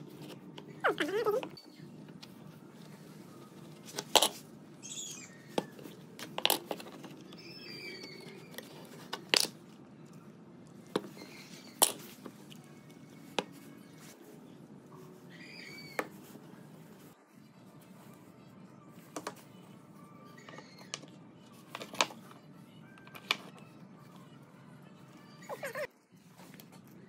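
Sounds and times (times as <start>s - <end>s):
faint bird chirps: 4.8s - 5.6s, 7.3s - 8.6s, 15.3s - 16.0s.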